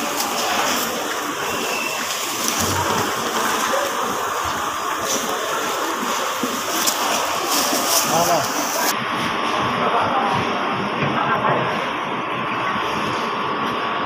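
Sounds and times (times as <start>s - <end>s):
onions rummaged by hand: 0.0s - 8.9s
plastic bags crinkling: 0.0s - 8.9s.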